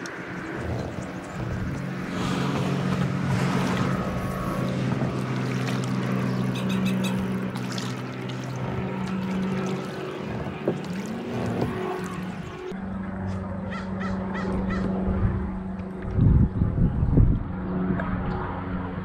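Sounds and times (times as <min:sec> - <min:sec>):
water splashing: 0:00.0 - 0:12.7
motorboat engine drone: 0:00.0 - 0:19.0.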